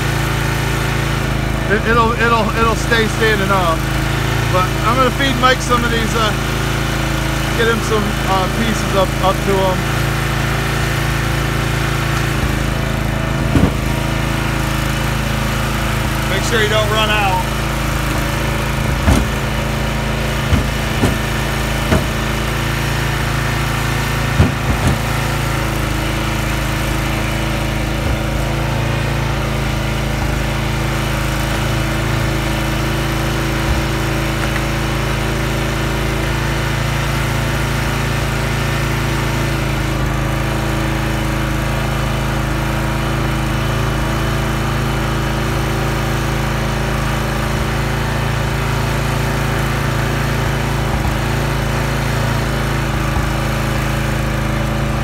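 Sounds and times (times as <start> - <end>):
gas engine running: 0.0 - 55.0
sharp knocks: 13.3 - 14.2, 18.0 - 30.6, 31.2 - 34.7.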